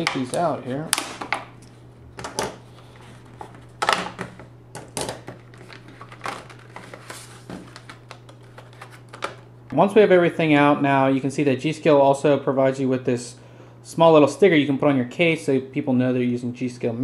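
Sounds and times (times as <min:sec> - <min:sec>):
plastic packaging crackling: 0:02.3 - 0:09.5.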